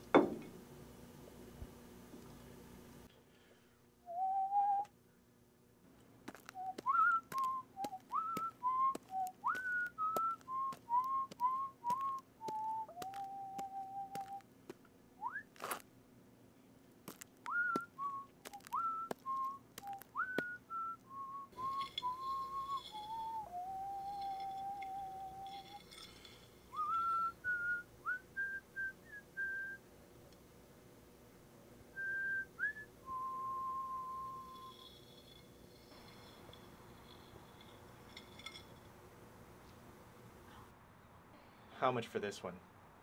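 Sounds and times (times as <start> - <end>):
person whistling a tune: 4.1 - 4.9, 6.5 - 14.4, 15.2 - 15.5, 17.5 - 26.1, 26.7 - 29.8, 31.9 - 35.0.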